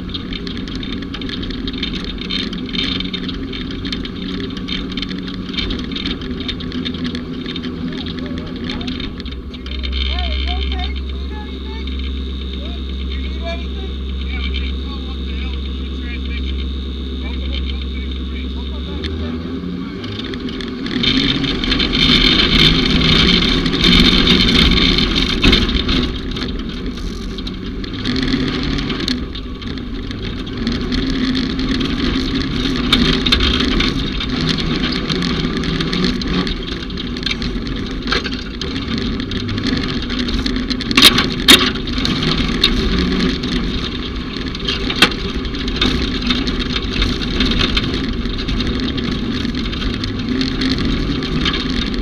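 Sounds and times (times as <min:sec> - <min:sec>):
racing vehicle engine under load: 0:00.0 - 0:52.0.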